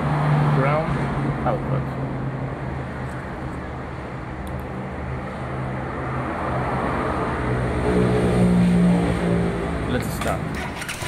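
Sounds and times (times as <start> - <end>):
motorcycle engine revving: 10.1 - 11.0.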